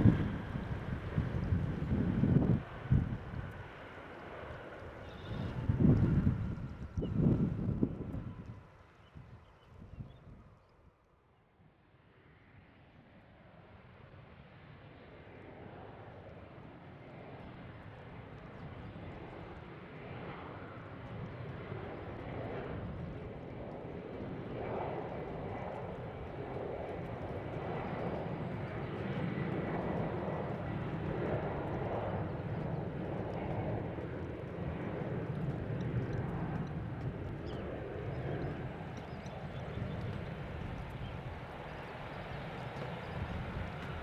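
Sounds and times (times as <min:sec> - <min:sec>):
jet engines rumbling: 0:00.0 - 0:08.9, 0:18.0 - 0:44.0.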